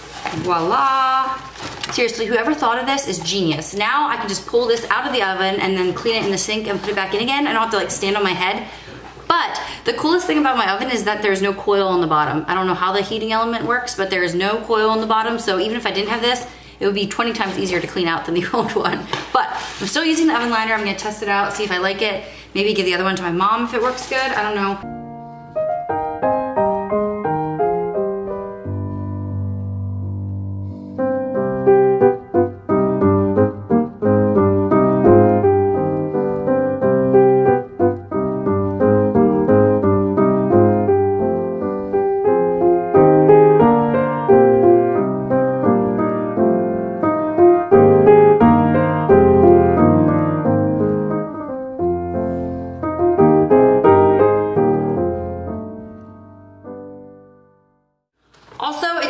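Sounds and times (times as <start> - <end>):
background piano music: 24.5 - 58.0.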